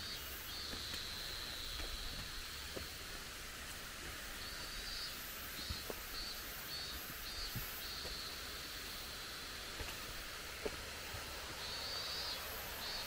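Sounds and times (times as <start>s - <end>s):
insects buzzing: 0.0s - 13.0s
soft footfalls: 5.6s - 6.1s, 9.7s - 11.2s.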